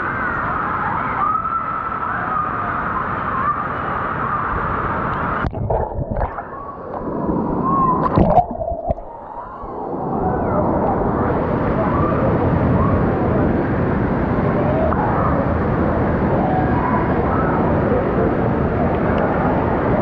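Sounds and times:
water splash: 0:05.4 - 0:09.6
water sloshing over camera: 0:05.4 - 0:09.9
muffled underwater gurgling: 0:05.4 - 0:13.6.

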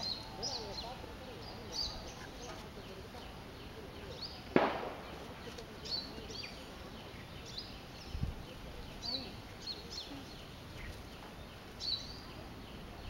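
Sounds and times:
sharp bang: 0:04.5 - 0:05.4.

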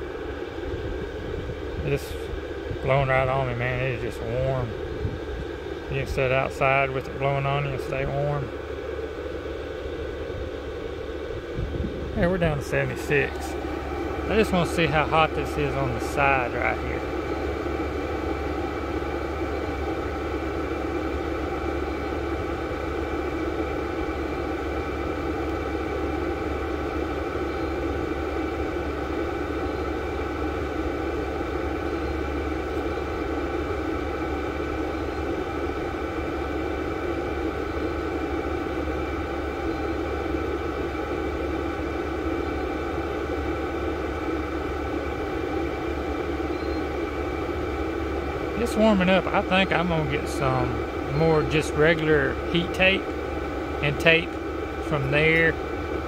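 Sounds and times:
heater blower whirring: 0:00.0 - 0:56.0.

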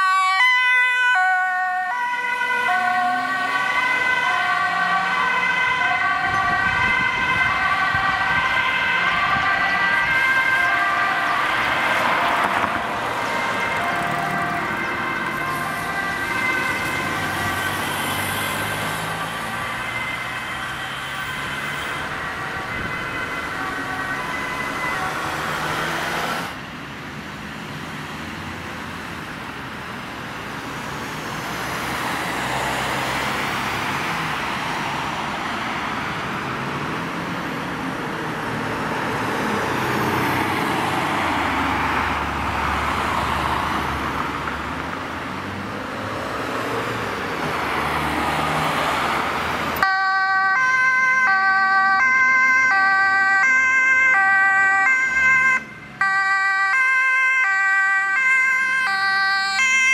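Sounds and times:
two-tone siren: 0:00.0 - 0:26.3, 0:49.8 - 0:59.9
fire engine two-tone siren: 0:00.0 - 0:26.6, 0:49.8 - 0:59.9
road traffic passing: 0:00.0 - 0:59.9.

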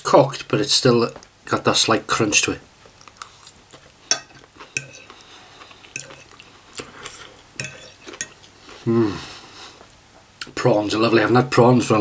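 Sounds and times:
cutlery scraping against plate: 0:03.8 - 0:06.4, 0:07.0 - 0:08.4.

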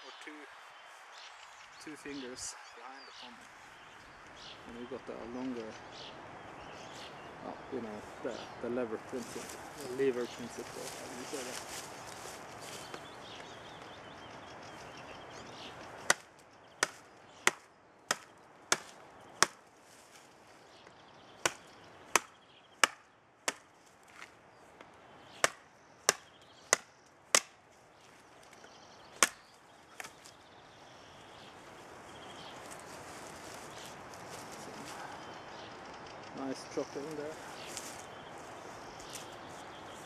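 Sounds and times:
knife chopping wood: 0:16.0 - 0:19.6, 0:21.4 - 0:24.3, 0:25.4 - 0:27.6, 0:29.2 - 0:29.4.

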